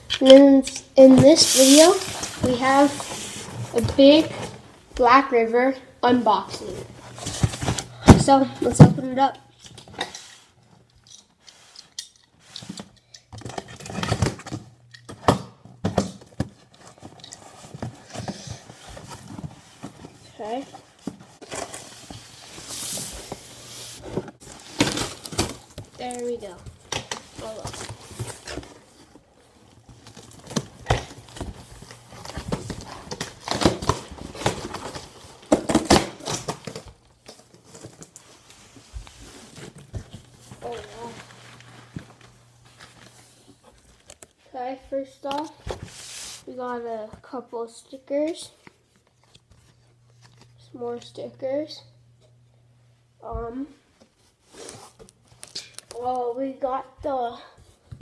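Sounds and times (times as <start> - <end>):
cardboard rustling and scraping: 1.0 - 4.6, 6.6 - 9.0, 16.0 - 44.3, 45.7 - 46.5.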